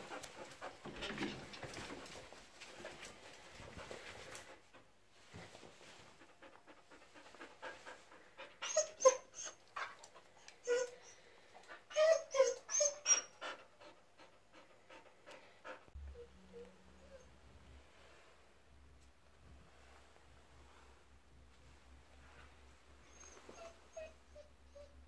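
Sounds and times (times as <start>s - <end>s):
dog panting: 0.0s - 4.9s, 5.9s - 9.0s, 13.4s - 16.0s
dog whimpering: 8.6s - 9.8s, 10.4s - 11.2s, 11.9s - 13.6s, 16.0s - 17.3s, 23.1s - 25.0s.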